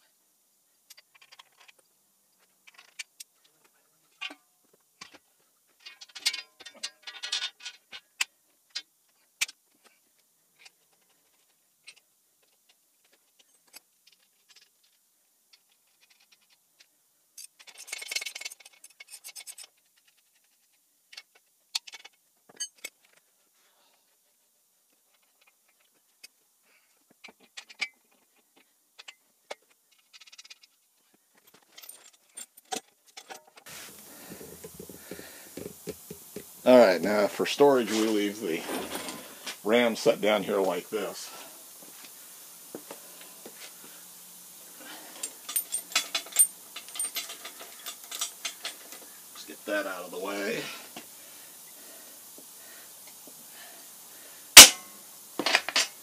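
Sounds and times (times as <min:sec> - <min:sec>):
metal bolts clicking on steel: 0:05.8 - 0:09.6, 0:17.4 - 0:20.5, 0:21.1 - 0:23.2, 0:45.2 - 0:49.5
jangling metal rattle: 0:17.4 - 0:20.6, 0:31.4 - 0:33.6, 0:44.9 - 0:49.5.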